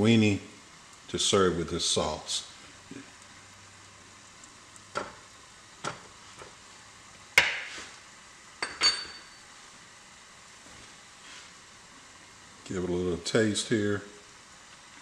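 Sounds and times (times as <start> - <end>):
ringing clink: 8.6 - 9.4.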